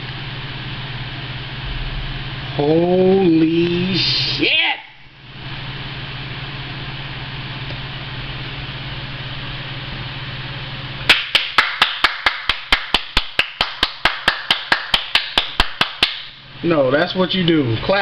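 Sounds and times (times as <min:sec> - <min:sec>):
steady hum: 0:00.0 - 0:18.0
person clapping hands: 0:11.1 - 0:16.3.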